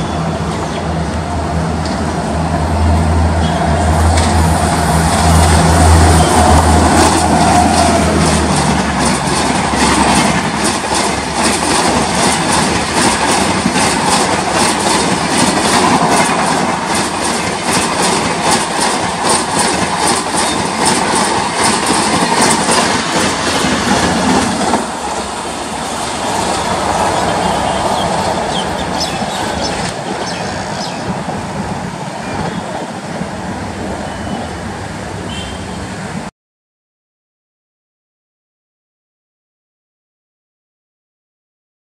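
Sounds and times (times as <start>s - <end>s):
train wheels clattering over rail joints: 4.1s - 31.6s.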